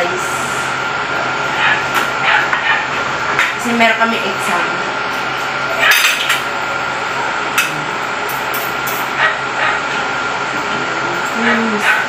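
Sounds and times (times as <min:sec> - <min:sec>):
air conditioner hiss and whine: 0:00.0 - 0:12.0.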